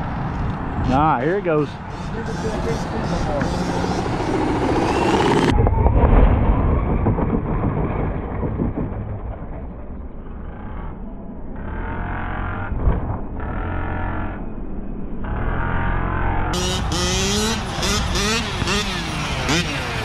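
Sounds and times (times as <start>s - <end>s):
low rumble: 0.0s - 20.0s
electric motor whining: 1.8s - 5.5s.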